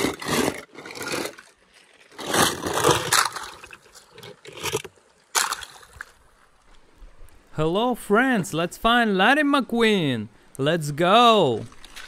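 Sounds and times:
toy cars splashing into creek water: 0.0s - 6.2s, 11.6s - 12.0s.

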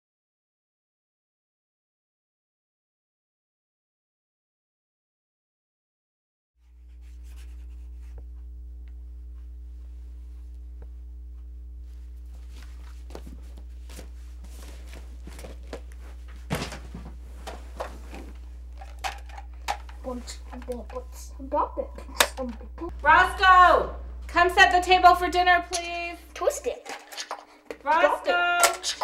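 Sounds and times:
pencil scratching on paper: 6.6s - 8.2s
low hum: 6.6s - 28.9s.

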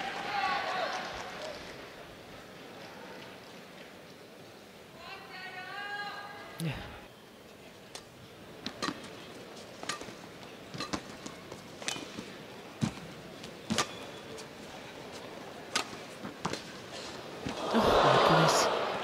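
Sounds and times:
rackets hitting shuttlecock: 8.7s - 9.1s, 9.8s - 12.2s, 15.7s - 16.7s
low hall murmur: 10.3s - 19.0s.

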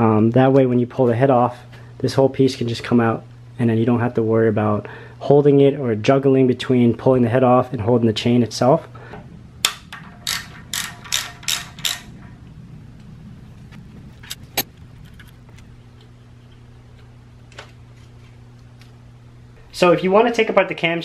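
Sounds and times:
steady low hum: 0.0s - 21.0s
metallic clicks: 9.6s - 13.1s
ratchet wrench clicking: 10.2s - 12.1s.

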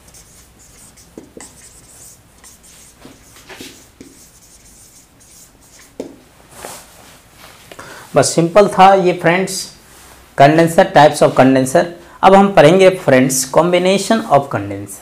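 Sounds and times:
marker writing on whiteboard: 0.0s - 6.2s.

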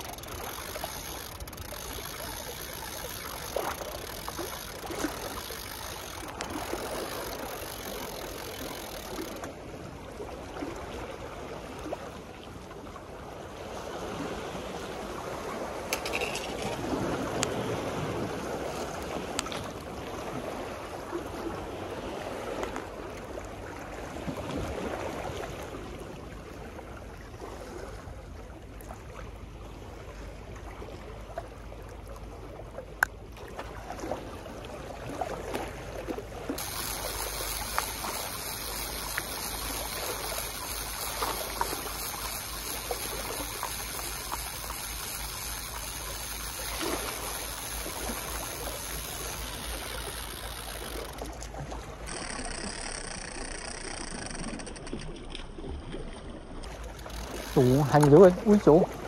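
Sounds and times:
small clicks: 0.0s - 9.5s, 36.6s - 55.6s, 56.6s - 58.5s
water lapping against a seawall: 0.0s - 59.0s.

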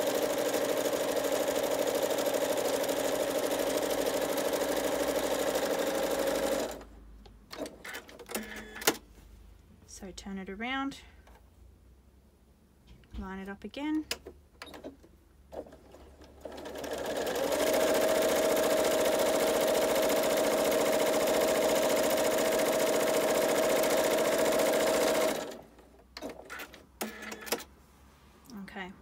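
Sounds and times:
sewing machine stitching: 0.0s - 6.9s, 7.5s - 9.0s, 14.2s - 27.7s.

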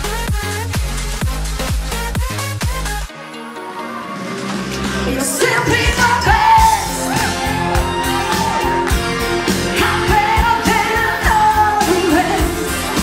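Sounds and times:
woman singing pop song: 4.8s - 7.3s, 9.5s - 13.0s.

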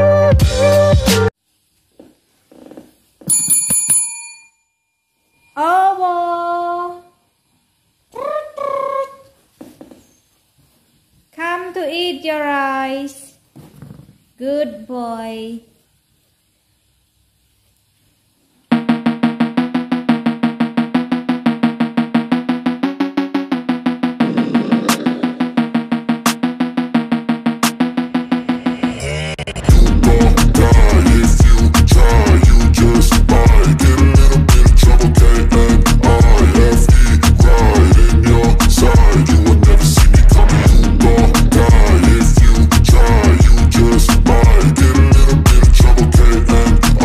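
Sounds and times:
desk bell ringing: 3.3s - 5.6s.

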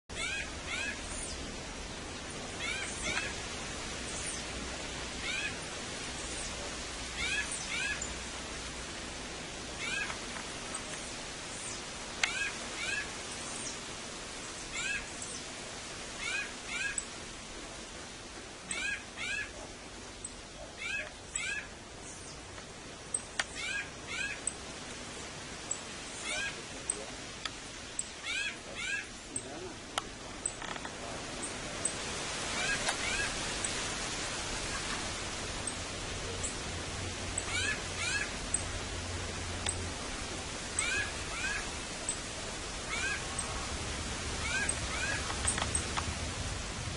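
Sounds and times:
steady hiss: 0.1s - 46.9s
bats squeaking: 7.2s - 8.2s, 20.2s - 21.7s, 28.0s - 29.6s, 37.4s - 38.7s, 40.8s - 42.2s, 44.4s - 46.0s.

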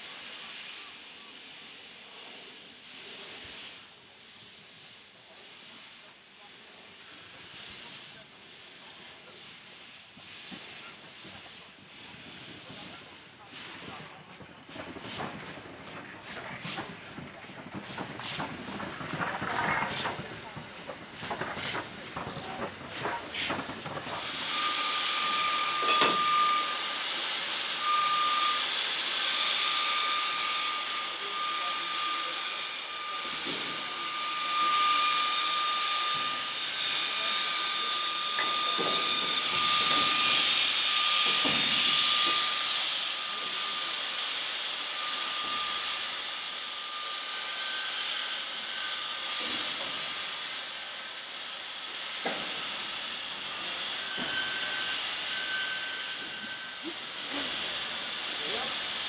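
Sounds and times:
steam locomotive hissing: 0.0s - 59.0s
high whistling note: 24.3s - 27.0s, 27.6s - 43.8s, 52.4s - 58.5s.

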